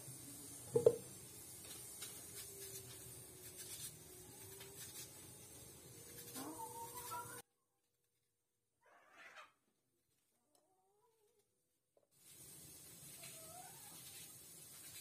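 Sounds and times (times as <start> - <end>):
knife slicing onion: 1.8 - 6.7.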